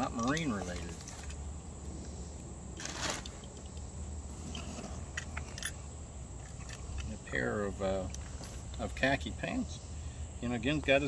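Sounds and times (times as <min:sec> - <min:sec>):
clothing and cardboard rustling: 0:02.8 - 0:03.5.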